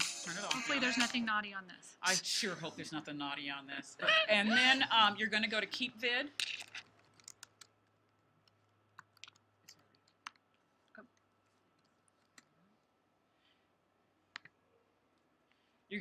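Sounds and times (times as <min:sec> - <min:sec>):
computer keyboard typing: 0:06.4 - 0:07.7, 0:08.4 - 0:10.4.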